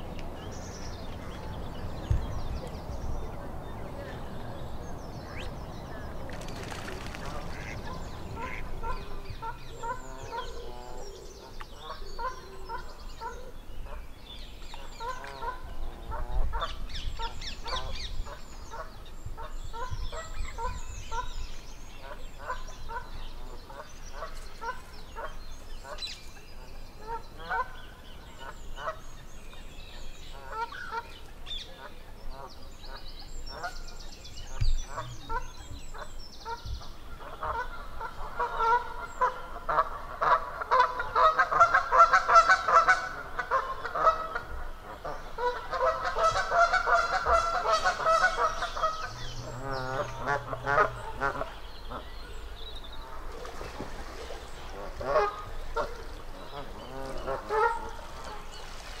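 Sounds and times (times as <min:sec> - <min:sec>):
geese honking: 0:07.3 - 0:10.8, 0:37.2 - 0:52.1, 0:54.7 - 0:58.4.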